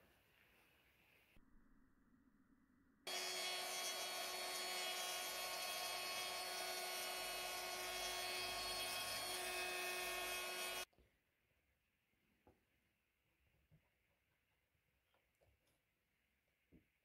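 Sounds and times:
small motor-driven tool whirring: 3.1 - 10.9.

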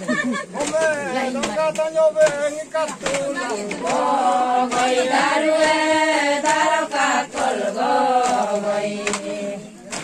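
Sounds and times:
group chanting in unison: 2.2 - 10.0.

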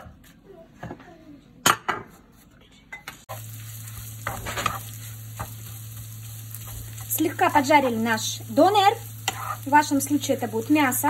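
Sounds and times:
meat sizzling in a frying pan: 3.3 - 11.0
wooden spatula scraping pan: 3.9 - 5.8, 9.2 - 9.7.

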